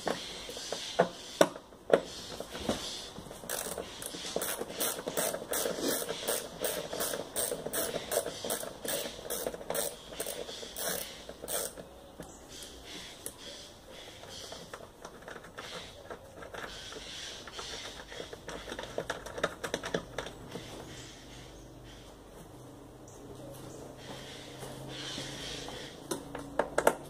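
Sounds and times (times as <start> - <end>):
ratchet wrench clicking: 3.5 - 11.9.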